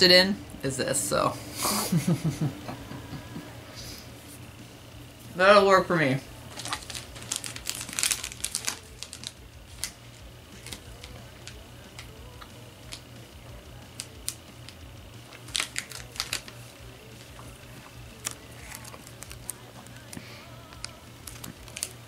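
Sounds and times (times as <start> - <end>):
snack wrappers crinkling: 6.5 - 10.0, 10.6 - 13.1, 13.9 - 22.0.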